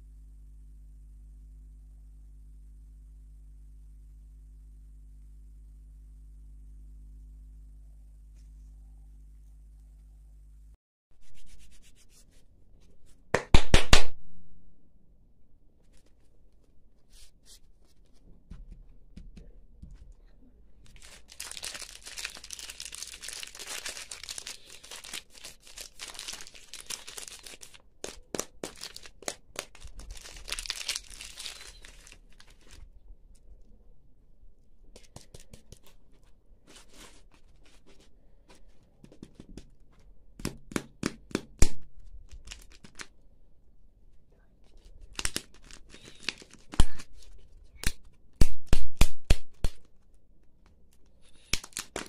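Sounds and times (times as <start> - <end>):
plastic wrapper crinkling: 20.8 - 32.9, 42.2 - 43.2, 44.7 - 48.1, 51.0 - 52.0.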